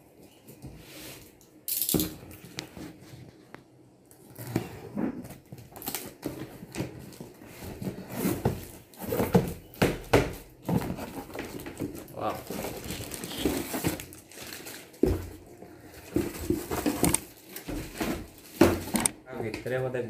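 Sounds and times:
plastic wrapping rustling: 10.4 - 19.1
cardboard flaps scraping: 10.6 - 14.2
packing tape ripping: 12.2 - 14.9.

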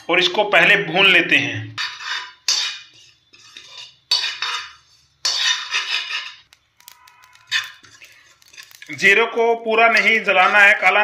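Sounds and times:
seeds rattling in a pan: 6.4 - 11.0.

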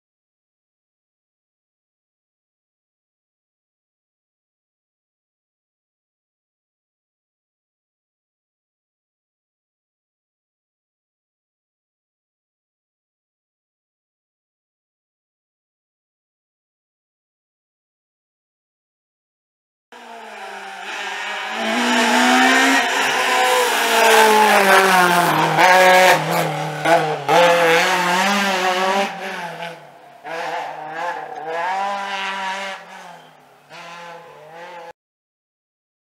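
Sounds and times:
car engine revving: 20.0 - 34.9.

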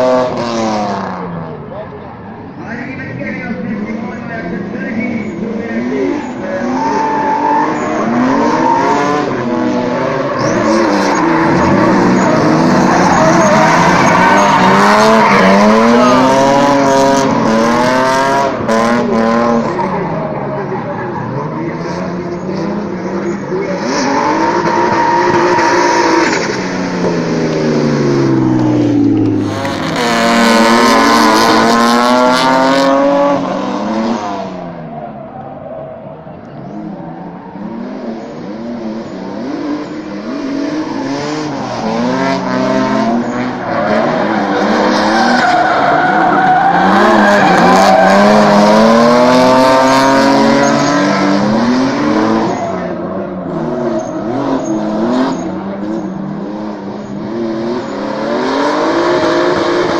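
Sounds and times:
car engine revving: 0.0 - 59.9
tyre squeal and skidding: 6.0 - 17.8, 19.6 - 26.6, 33.1 - 56.3.

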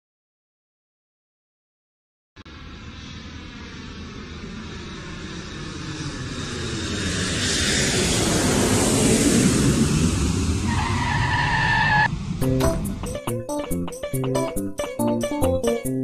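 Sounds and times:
cartoon rushing engine noise: 2.5 - 14.6
plucked guitar tune: 12.4 - 16.0.

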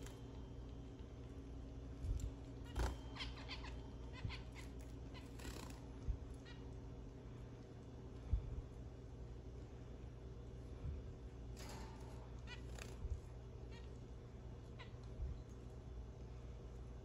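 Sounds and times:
finches chirping: 2.7 - 5.8.

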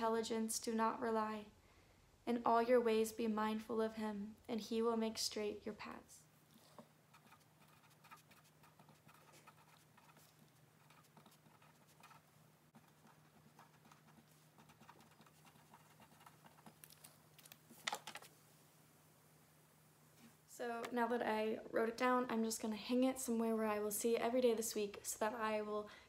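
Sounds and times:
pen writing on paper: 7.1 - 16.8.

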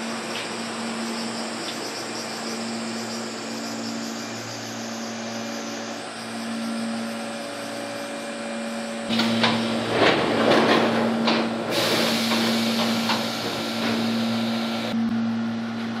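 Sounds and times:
train car electrical hum: 0.0 - 16.0
sliding door clattering shut: 9.1 - 14.2
pneumatic air hiss: 11.7 - 14.9.

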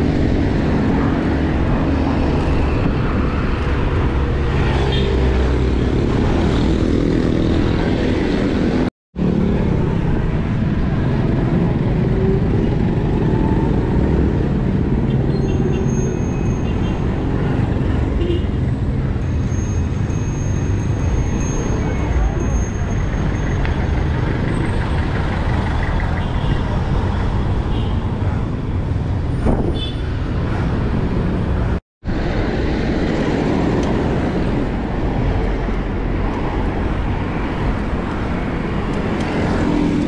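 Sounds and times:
motor traffic: 0.0 - 40.0
wind on microphone: 27.4 - 40.0.

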